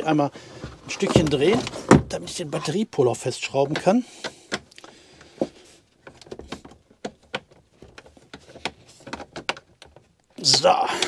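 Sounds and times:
clicks and knocks of a tool: 3.7 - 11.0.

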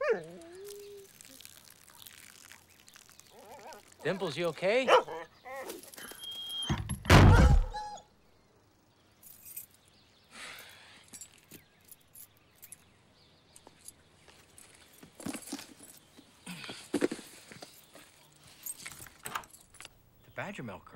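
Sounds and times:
loud low sudden thud: 7.1 - 7.8.

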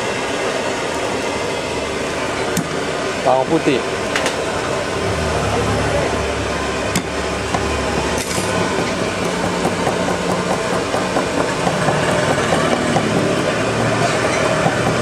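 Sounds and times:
steady background noise: 0.0 - 15.0
cleaver chopping on wooden board: 8.8 - 15.0.

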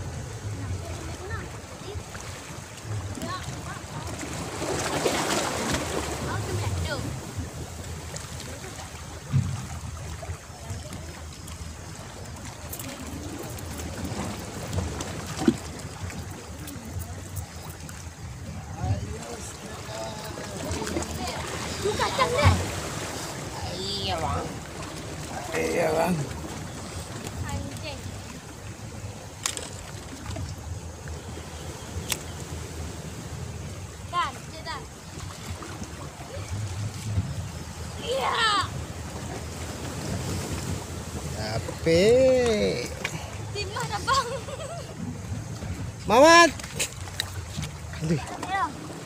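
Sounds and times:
waves lapping at rocks: 0.0 - 49.0
wind rumbling on microphone: 0.0 - 49.0.

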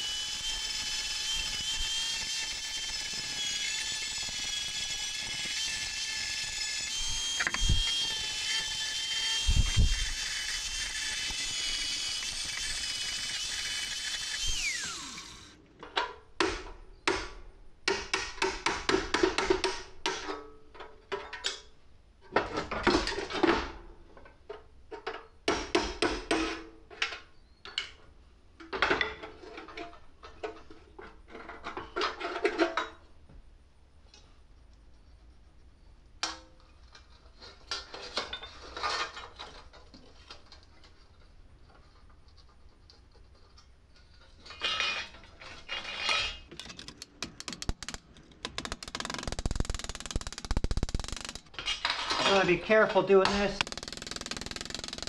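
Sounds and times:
angle grinder whine: 0.0 - 15.6.

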